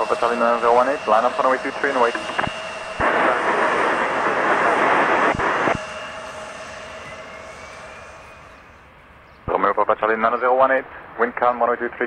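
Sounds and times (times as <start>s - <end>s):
radio static: 0.0s - 7.2s
jet engines running: 0.0s - 12.0s.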